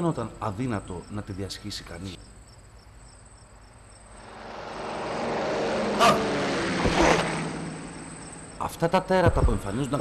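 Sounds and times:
vehicle rushing past: 4.1 - 8.6.

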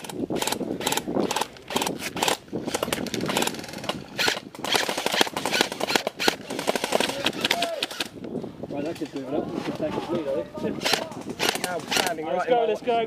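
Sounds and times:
airsoft rifles firing bursts: 0.0 - 8.1, 10.8 - 12.2.

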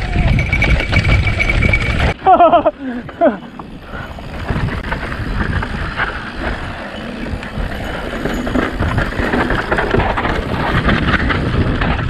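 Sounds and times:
wind on microphone: 0.0 - 2.2, 3.8 - 12.0
bike rattling over bumps: 0.0 - 12.0
tyres rumbling over dirt: 0.0 - 12.0.

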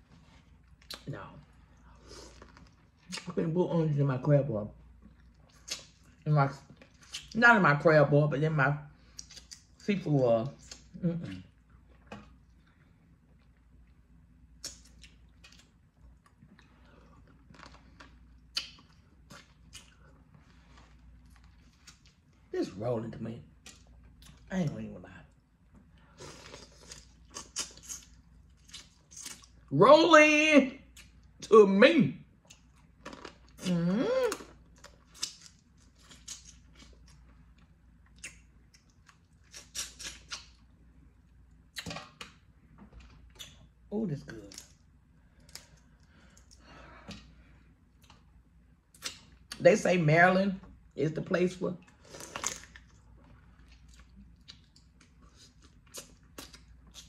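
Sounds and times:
person chewing and lip smacking: 0.5 - 1.2, 4.9 - 7.4, 9.1 - 9.8, 10.6 - 20.2, 25.3 - 29.7, 32.4 - 43.7, 47.9 - 49.6, 51.8 - 57.0.

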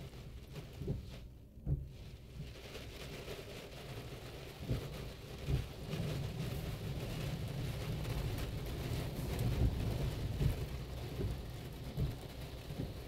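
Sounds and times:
car wash brushes rumbling: 0.0 - 13.0
irregular thumps: 0.8 - 2.6.

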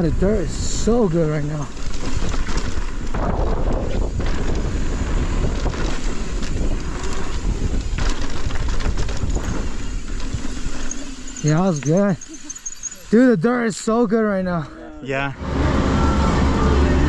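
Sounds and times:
wind rushing over microphone: 0.0 - 12.2
bike knocking and rattling: 1.3 - 13.1
tyre noise on dirt: 1.4 - 13.1.

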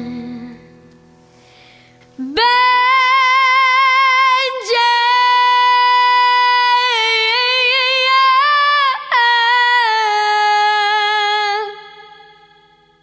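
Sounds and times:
girl singing high note: 2.2 - 11.8.

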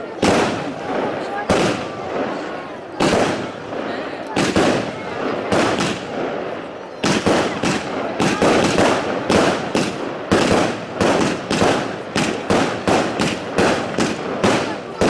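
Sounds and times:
fireworks bangs: 0.0 - 15.0
fireworks crackling: 0.0 - 15.0.

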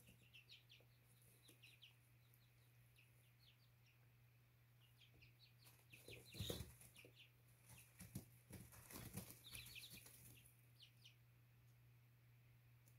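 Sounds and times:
chicks peeping: 0.0 - 12.0
wings flapping: 7.7 - 10.5.

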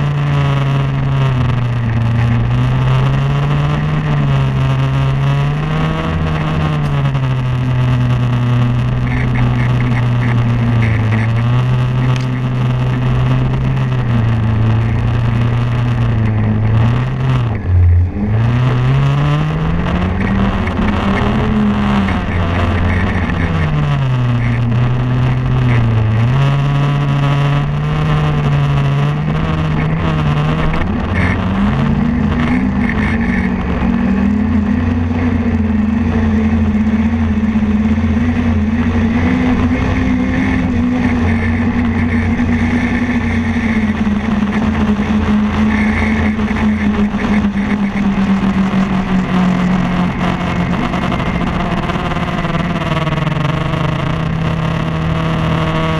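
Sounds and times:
snowmobile engine revving: 0.0 - 55.9.

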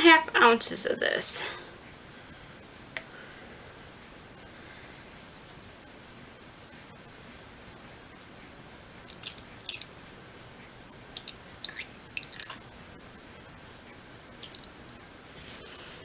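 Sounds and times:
faint wet clicks and drips: 9.1 - 9.9, 11.2 - 12.6, 14.4 - 14.8
oil pouring into cup: 11.2 - 12.6, 14.4 - 14.7.

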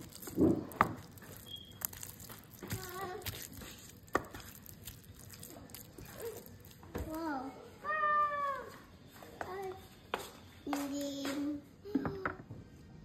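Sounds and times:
hands rubbing raw chicken: 0.0 - 6.8.

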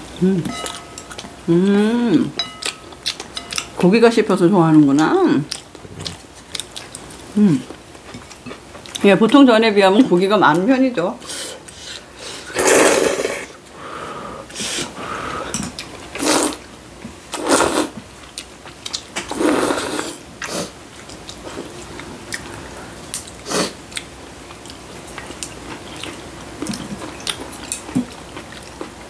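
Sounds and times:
chewing: 5.0 - 9.4, 18.2 - 19.4, 20.4 - 29.0
people slurping noodles: 11.4 - 13.6, 19.3 - 20.7.

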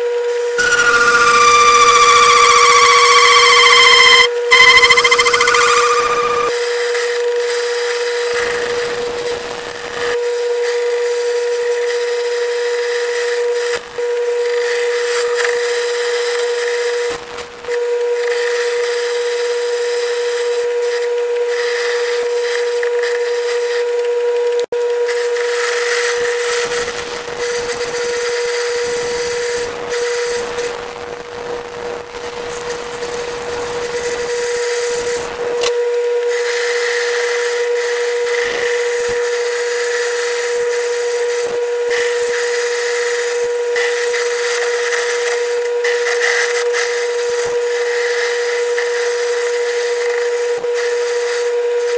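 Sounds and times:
hiss of tool cutting metal: 0.6 - 6.5
metal lathe whine: 0.6 - 6.5.

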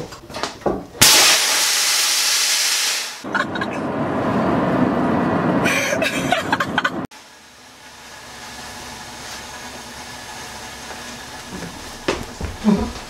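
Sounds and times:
explosive gas hiss: 1.0 - 3.2.

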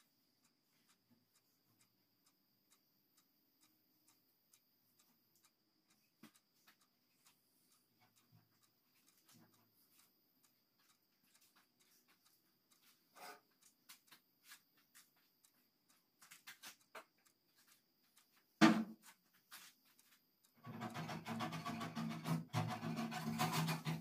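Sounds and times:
sharp knock: 18.6 - 19.0
paintbrush scratching on metal: 20.6 - 24.0.

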